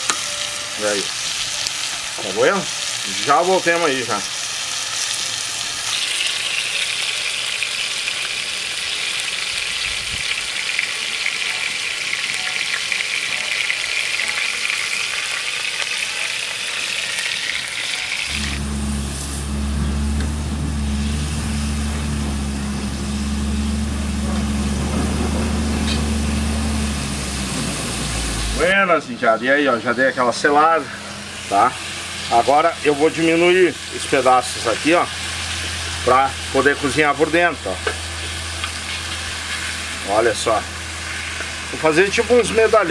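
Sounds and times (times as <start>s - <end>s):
meat sizzling in a pan: 0.0s - 28.8s, 29.6s - 42.9s
steady low motor hum: 18.2s - 42.9s.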